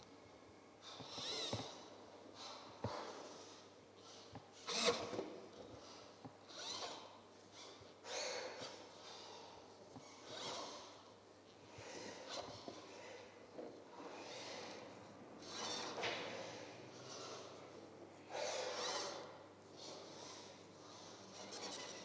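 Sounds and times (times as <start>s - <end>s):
pens scratching across paper: 18.4s - 22.0s.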